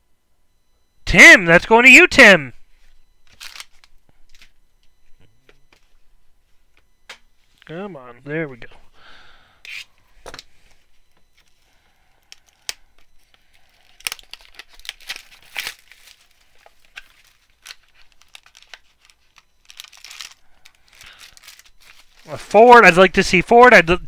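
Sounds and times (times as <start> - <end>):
plastic wrapping tearing and crinkling: 3.2 - 4.5, 13.5 - 22.3.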